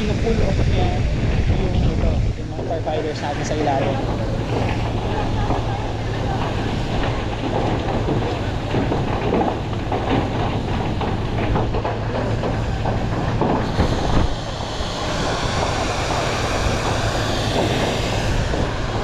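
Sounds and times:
pump engine humming: 0.0s - 19.0s
crackle: 2.6s - 19.0s
rushing hiss of water: 13.7s - 19.0s.

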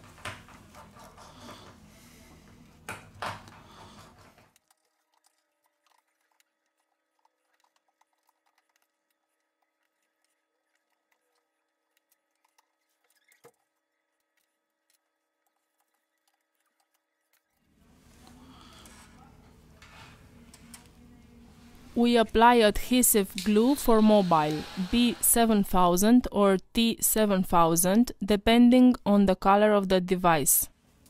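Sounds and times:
faint steady hum: 17.7s - 31.0s.

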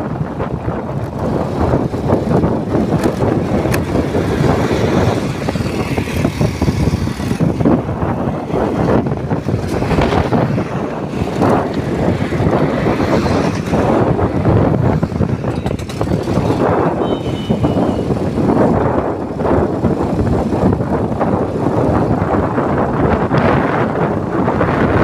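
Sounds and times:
road and traffic noise: 0.0s - 25.0s
wind buffeting microphone: 0.0s - 25.0s.

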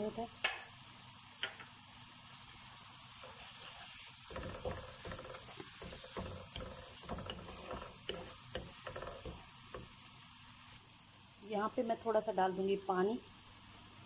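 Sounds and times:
masala sizzling in hot oil: 0.0s - 14.0s
spatula scraping a pan: 3.2s - 9.9s.

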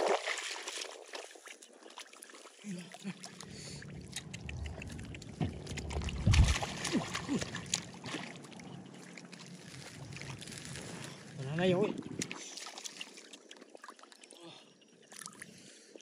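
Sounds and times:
hands splashing in muddy water: 0.0s - 8.8s.

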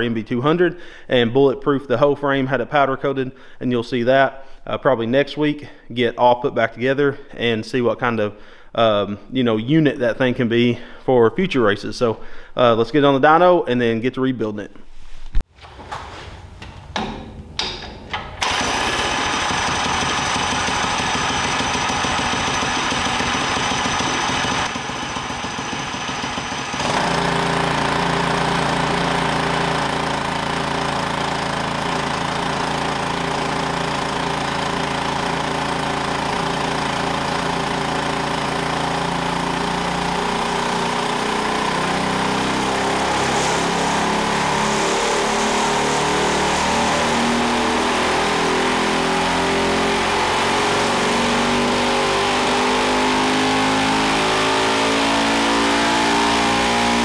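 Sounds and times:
engine starting and running loud: 15.6s - 57.0s.

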